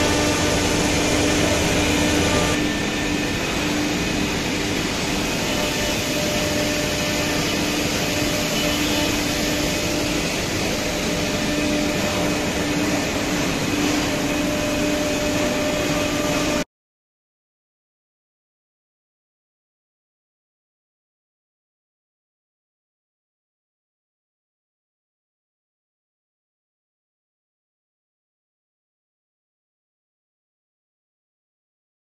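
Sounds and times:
dust extraction running: 0:00.0 - 0:16.6
router machine running: 0:00.0 - 0:16.6.

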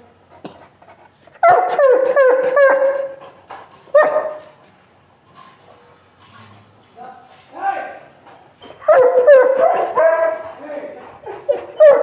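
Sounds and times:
dog whining cries: 0:01.4 - 0:03.3, 0:08.6 - 0:10.5, 0:11.2 - 0:12.0.

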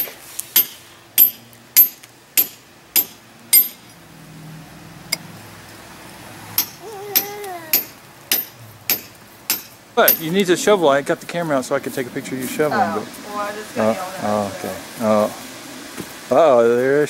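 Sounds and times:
hammer striking chisel: 0:00.6 - 0:03.8, 0:06.6 - 0:10.3.

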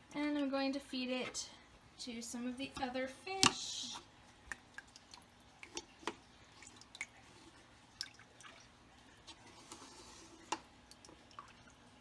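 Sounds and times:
water drips: 0:03.4 - 0:09.4, 0:10.5 - 0:12.0.

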